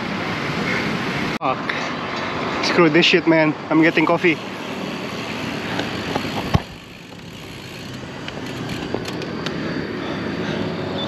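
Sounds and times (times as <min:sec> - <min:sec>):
wind rush while cycling: 0:04.3 - 0:11.0.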